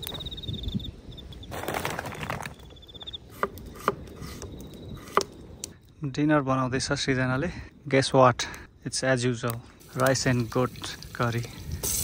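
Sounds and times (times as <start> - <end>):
knife chopping on wooden board: 5.0 - 5.3.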